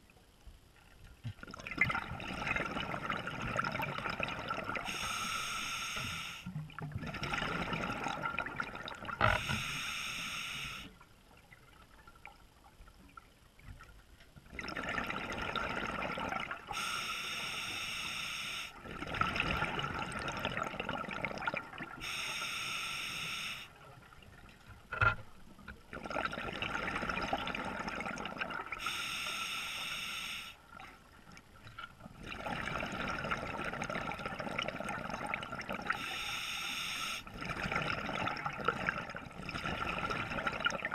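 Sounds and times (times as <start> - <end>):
regulator inhalation hiss: 4.9 - 6.5, 9.4 - 10.9, 16.8 - 18.8, 22.0 - 23.7, 28.8 - 30.6, 36.0 - 37.3.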